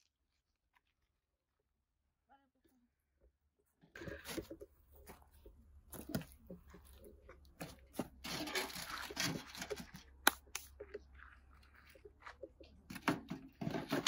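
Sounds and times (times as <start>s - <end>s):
rustling crunch: 4.0s - 14.0s.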